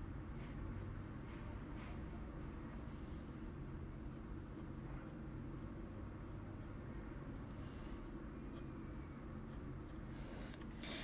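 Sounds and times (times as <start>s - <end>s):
steady low hum: 0.0s - 11.0s
colored pencil scratching on card: 9.4s - 10.7s.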